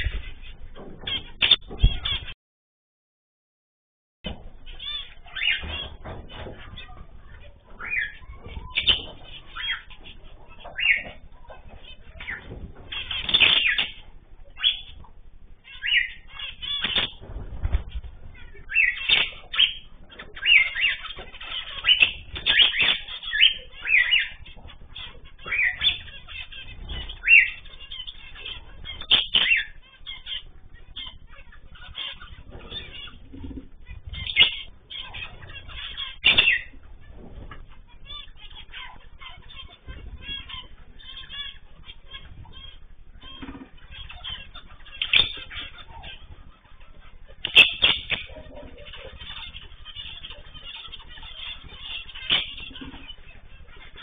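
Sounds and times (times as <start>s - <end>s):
finches calling: 4.7s - 17.2s, 17.8s - 54.0s
wing flutters: 15.6s - 54.0s.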